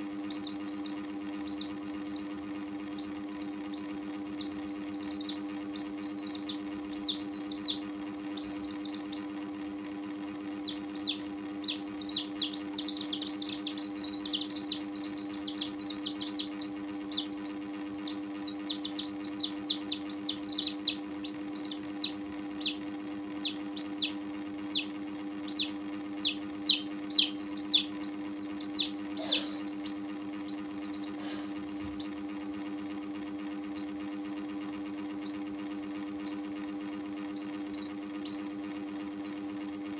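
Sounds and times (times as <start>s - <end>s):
chicks peeping: 0.0s - 39.9s
steady low hum: 0.0s - 39.9s.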